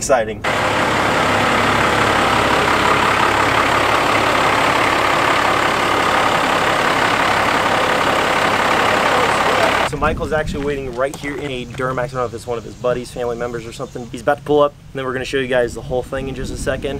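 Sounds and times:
diesel engine idling: 0:00.4 - 0:09.9.

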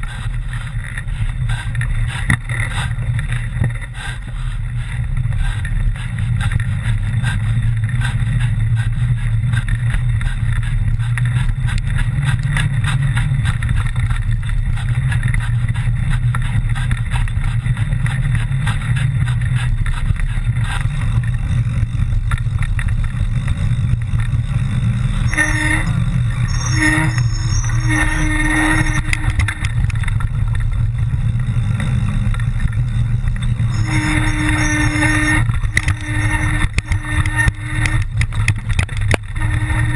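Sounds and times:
bike rattling: 0:00.0 - 0:39.9
humming tone: 0:21.4 - 0:39.9.

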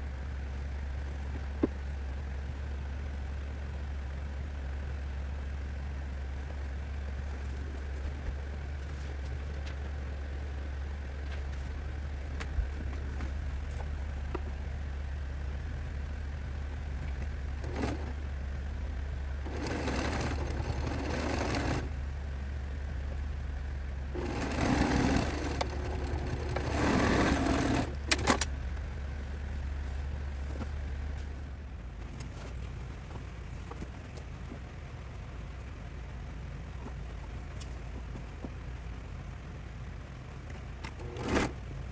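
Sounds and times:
steady low hum: 0:00.0 - 0:41.9
sewing machine stitching: 0:17.6 - 0:18.2, 0:19.4 - 0:22.0, 0:24.2 - 0:28.5, 0:40.9 - 0:41.6.

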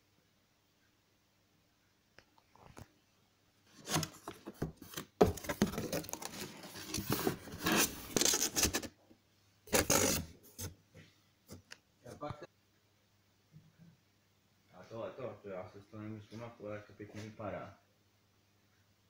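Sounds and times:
packing rustling: 0:03.7 - 0:08.9
cardboard flaps scraping: 0:03.8 - 0:08.9, 0:09.7 - 0:10.8.

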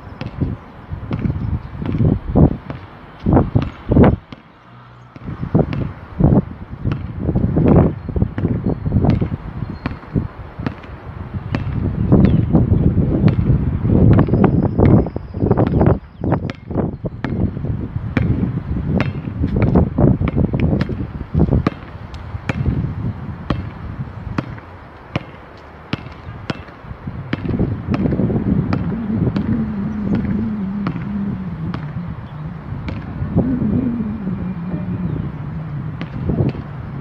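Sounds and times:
basketball bouncing on court: 0:00.2 - 0:04.5, 0:05.2 - 0:32.0, 0:32.8 - 0:33.2, 0:36.0 - 0:36.7
steady low hum: 0:27.0 - 0:37.0.

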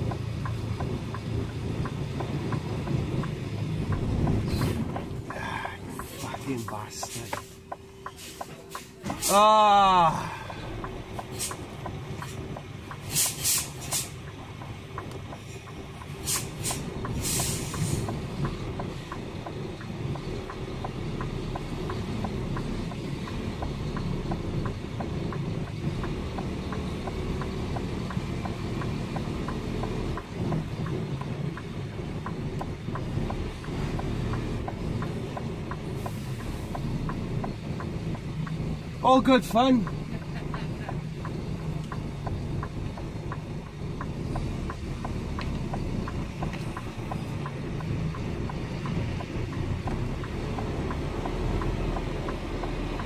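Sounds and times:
lorry diesel engine running: 0:00.0 - 0:53.0
air brake hisses: 0:11.3 - 0:11.6, 0:13.0 - 0:14.2, 0:16.2 - 0:18.1.

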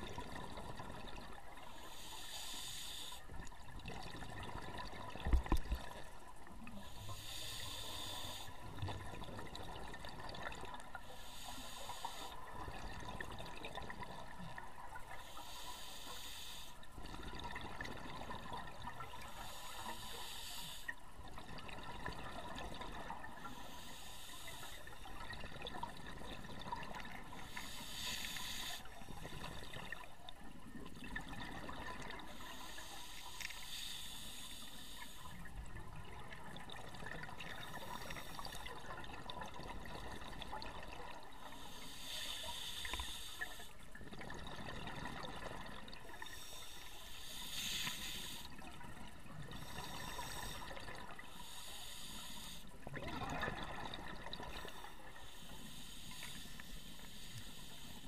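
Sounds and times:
scuba regulator breathing underwater: 0:01.7 - 0:03.4, 0:06.7 - 0:09.0, 0:10.4 - 0:12.8, 0:15.0 - 0:17.2, 0:19.0 - 0:21.0, 0:22.5 - 0:25.2, 0:26.9 - 0:29.9, 0:31.4 - 0:35.5, 0:37.3 - 0:39.0, 0:41.4 - 0:43.8, 0:44.4 - 0:58.0.

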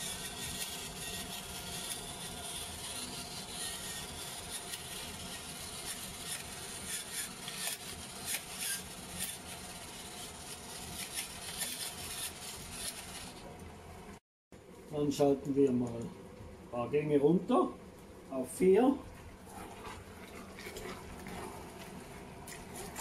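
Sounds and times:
pepper mill grinding: 0:00.0 - 0:13.4.

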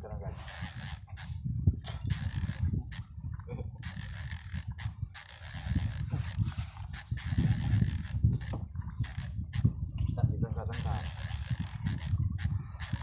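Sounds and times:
low wind: 0:00.0 - 0:13.0
fishing reel drag buzzing: 0:00.4 - 0:01.3, 0:02.1 - 0:03.0, 0:03.8 - 0:09.7, 0:10.7 - 0:13.0.

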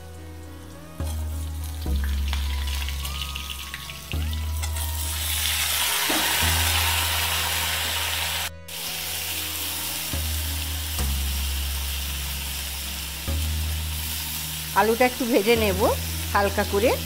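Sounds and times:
metal spatula turning food: 0:00.0 - 0:07.2
potatoes sizzling in hot oil: 0:00.0 - 0:17.0.

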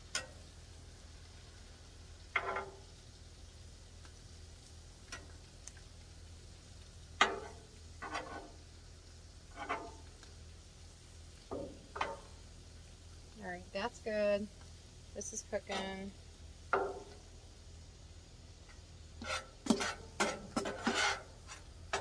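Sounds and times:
metal spatula scraping on griddle: 0:00.1 - 0:00.4, 0:02.2 - 0:03.0, 0:07.2 - 0:08.8, 0:09.4 - 0:10.3, 0:11.5 - 0:12.4, 0:15.3 - 0:16.1, 0:18.6 - 0:22.0.

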